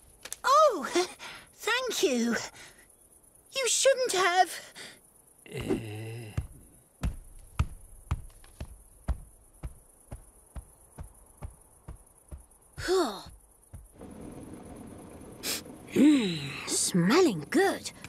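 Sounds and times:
cricket-like chirr: 0.0s - 18.0s
faint steady hiss: 0.0s - 18.0s
heavy cartoon footsteps: 5.6s - 14.0s.

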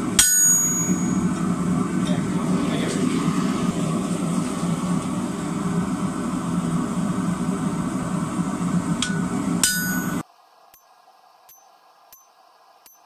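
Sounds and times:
steady machine drone: 0.0s - 10.2s
hammer striking chisel: 0.2s - 1.2s, 9.0s - 10.2s.

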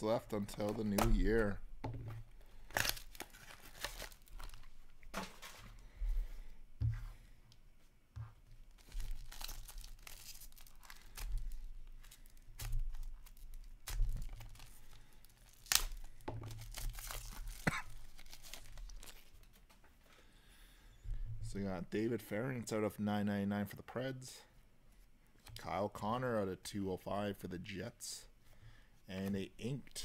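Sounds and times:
foil wrapper tearing and crinkling: 2.6s - 4.7s, 8.8s - 19.5s.

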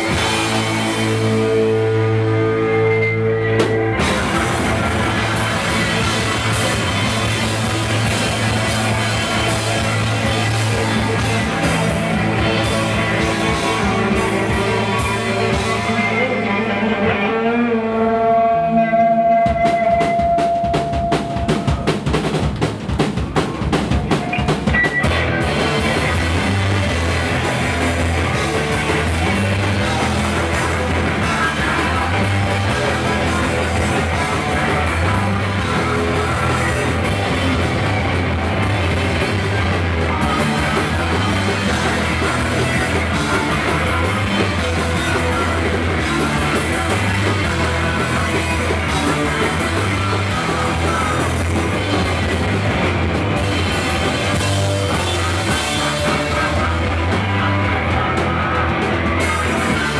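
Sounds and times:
punk band playing: 0.0s - 59.9s
rapid drum hits: 19.6s - 59.9s.

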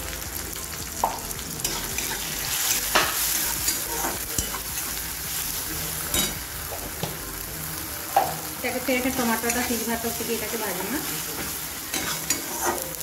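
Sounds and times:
vegetables sizzling in oil: 0.0s - 13.0s
spatula scraping pan: 9.2s - 13.0s.

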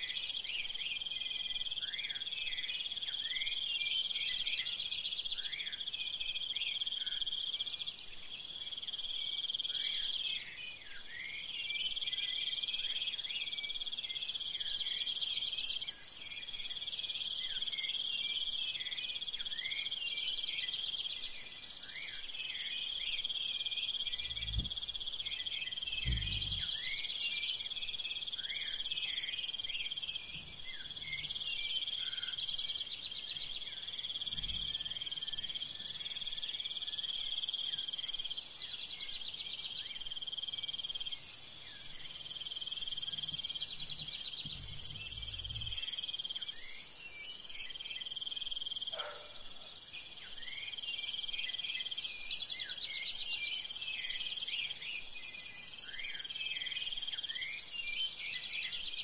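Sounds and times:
crickets and insects trilling: 21.7s - 32.8s, 33.6s - 38.6s, 40.1s - 50.6s
faint low rumbles: 24.1s - 25.2s, 25.9s - 26.8s, 44.3s - 45.8s.

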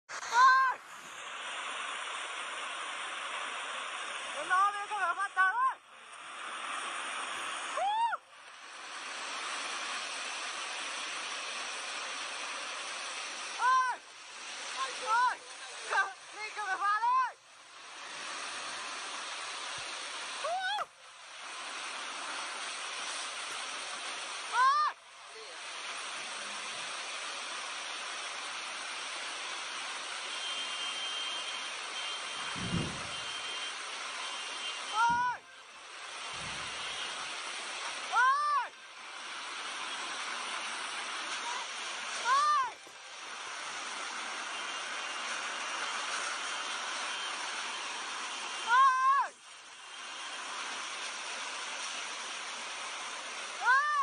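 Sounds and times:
floodwater rushing: 0.1s - 54.0s
person giving high cry: 24.6s - 24.9s, 38.2s - 38.7s, 48.7s - 49.3s, 53.6s - 54.0s.

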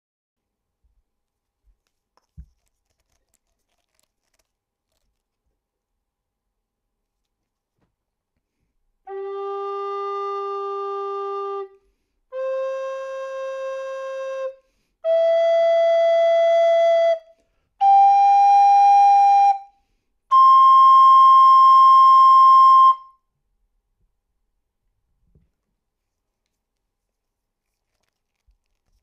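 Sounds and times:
alto recorder long notes: 9.1s - 17.2s, 20.3s - 23.1s.

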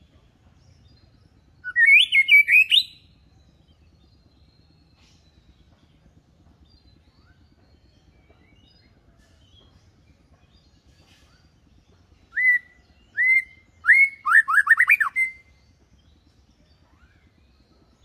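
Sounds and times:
bird chirps: 0.8s - 5.8s, 10.4s - 18.0s
rapid run of bird notes: 1.1s - 5.7s, 10.2s - 18.0s
bird whistles sweeping upward: 1.7s - 3.0s, 12.3s - 15.5s.

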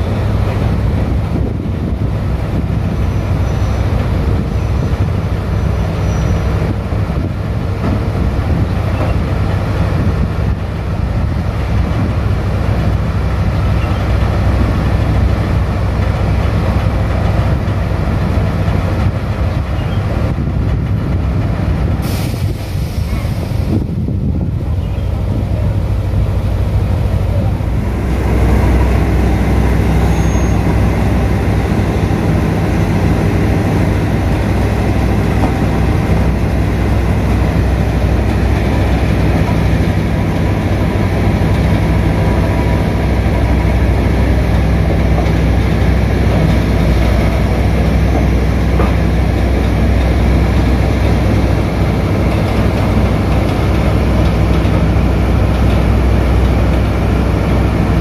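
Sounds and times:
diesel engine droning: 0.0s - 58.0s.

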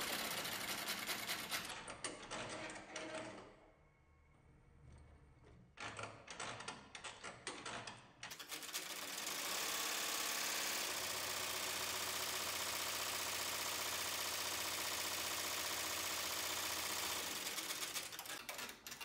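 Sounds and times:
embroidery machine stitching: 0.0s - 3.2s, 8.3s - 19.0s.

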